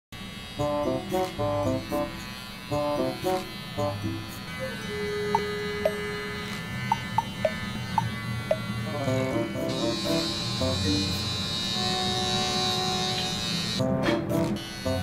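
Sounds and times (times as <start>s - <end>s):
electric trimmer buzzing: 0.2s - 15.0s
bouncy background music: 0.6s - 6.2s, 13.8s - 15.0s.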